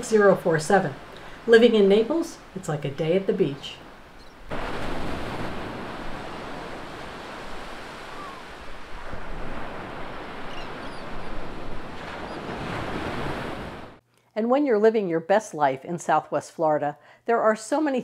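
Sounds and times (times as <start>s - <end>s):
small waves breaking on beach: 3.3s - 14.0s.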